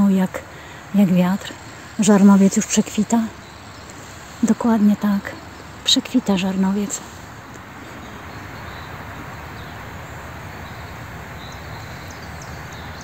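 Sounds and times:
road traffic noise: 0.0 - 13.0
bird chirps: 7.8 - 13.0.

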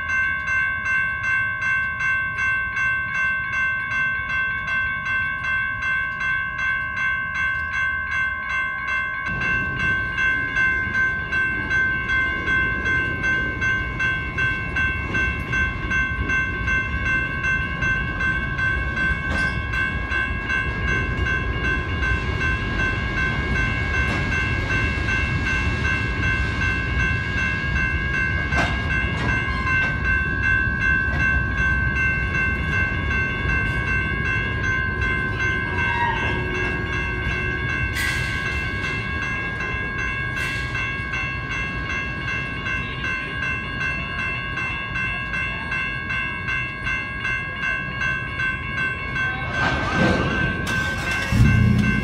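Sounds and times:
railroad crossing bell ringing: 0.0 - 52.0
freight cars rumbling past: 49.6 - 52.0.

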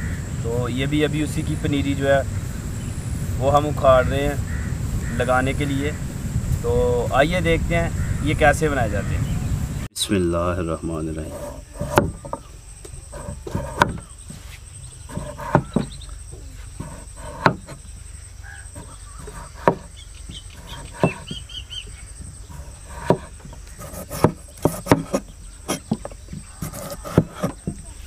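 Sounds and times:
cleaver slicing potatoes: 11.3 - 12.4, 13.1 - 14.1, 15.1 - 16.0, 16.8 - 17.8, 18.7 - 21.5, 22.2 - 28.0
cleaver knocking wooden board: 11.4 - 14.4, 15.1 - 16.0, 16.8 - 17.9, 18.7 - 21.5, 22.2 - 28.0.

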